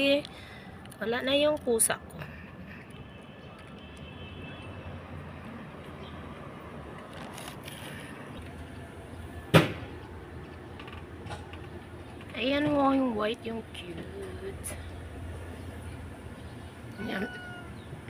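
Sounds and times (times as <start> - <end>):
outdoor background noise: 0.0 - 18.0
sharp knock: 9.5 - 9.8.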